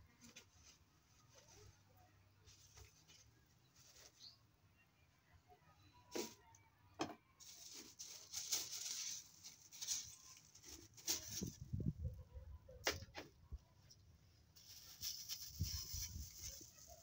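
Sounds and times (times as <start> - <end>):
plastic bags and herbs rustling: 0.0 - 4.5, 7.4 - 12.2, 14.5 - 17.0.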